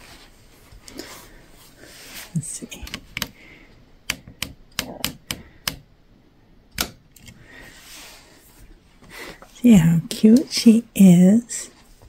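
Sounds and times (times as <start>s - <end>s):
doll clicking: 4.0s - 5.8s.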